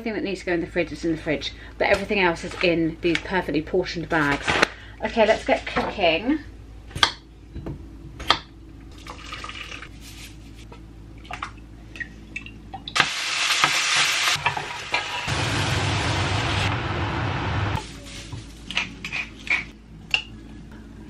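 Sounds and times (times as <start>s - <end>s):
mince sizzling in frying pan: 13.0s - 19.4s
low hum: 15.2s - 21.0s.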